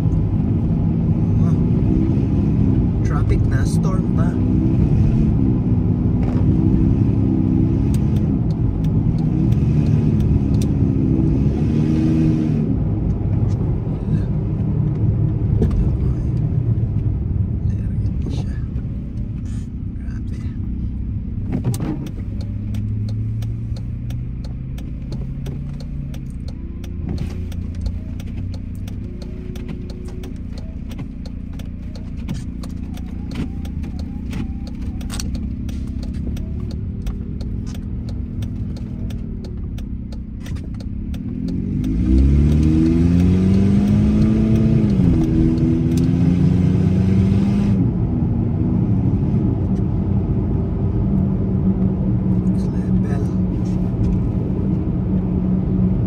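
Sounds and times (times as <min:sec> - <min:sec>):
car engine and road rumble: 0:00.0 - 0:56.0
light ticks: 0:07.9 - 0:10.8, 0:21.7 - 0:46.1.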